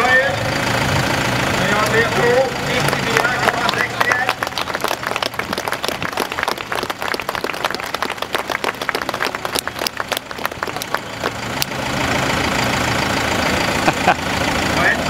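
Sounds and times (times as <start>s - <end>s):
steady engine noise: 0.0s - 15.0s
crowd clapping: 2.6s - 11.8s.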